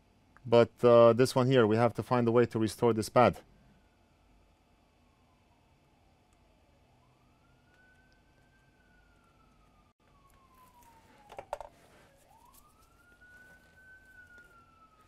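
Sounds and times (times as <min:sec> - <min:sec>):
faint emergency siren wailing: 0:03.4 - 0:15.0.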